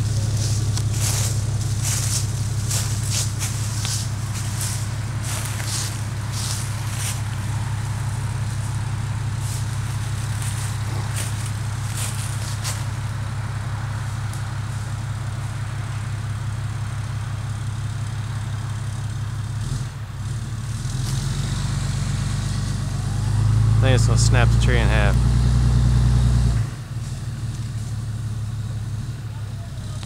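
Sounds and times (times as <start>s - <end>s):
twigs crackling underfoot: 0.0s - 13.1s
pickup diesel engine running: 0.0s - 30.0s.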